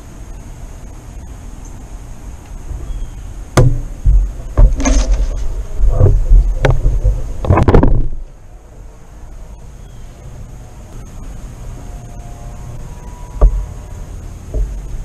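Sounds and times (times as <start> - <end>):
wind on microphone: 2.6 - 9.4
sharp knock: 3.6 - 5.4
handling thumps and knocks: 3.6 - 8.2, 13.4 - 13.7, 14.5 - 15.0.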